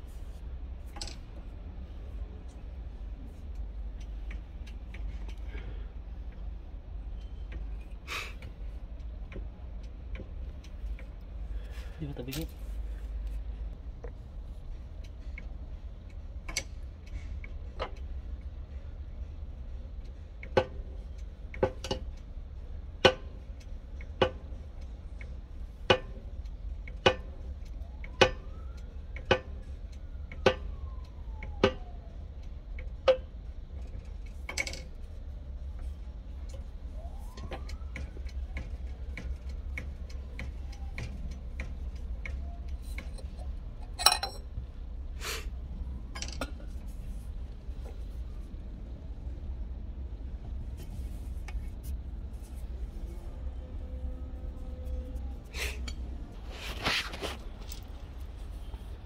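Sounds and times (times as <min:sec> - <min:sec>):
steady low hum: 0:00.0 - 0:59.0
steel driver striking metal: 0:43.8 - 0:44.4.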